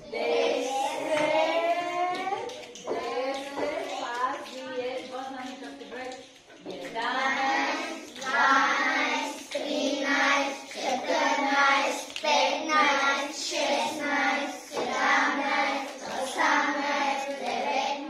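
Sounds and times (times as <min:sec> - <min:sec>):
children singing in unison: 0:00.0 - 0:02.0, 0:06.7 - 0:18.0.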